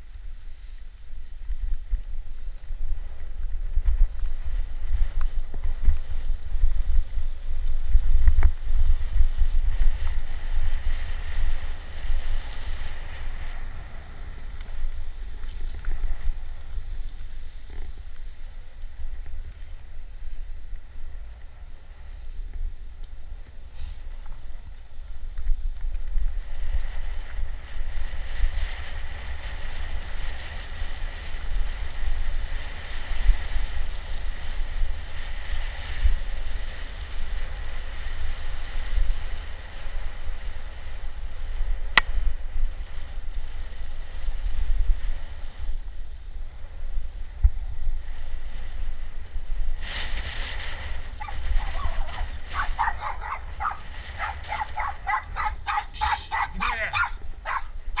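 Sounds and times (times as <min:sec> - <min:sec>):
wind buffeting microphone: 0:00.0 - 0:58.0
dog whining and yipping: 0:51.2 - 0:57.7.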